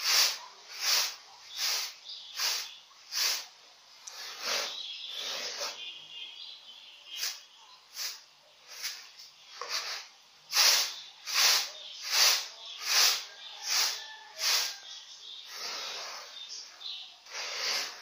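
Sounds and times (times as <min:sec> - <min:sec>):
rice swishing on winnowing tray: 0:00.0 - 0:03.5, 0:07.2 - 0:14.8, 0:17.3 - 0:18.0.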